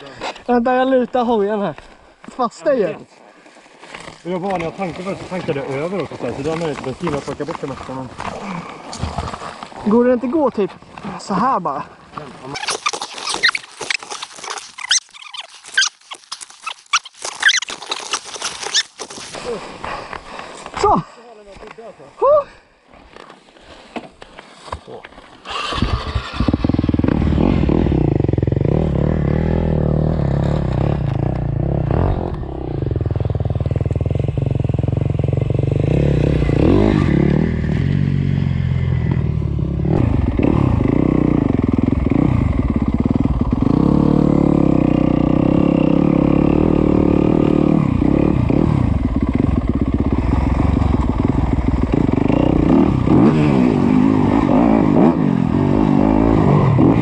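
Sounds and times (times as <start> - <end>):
dirt bike engine revving: 25.4 - 57.0.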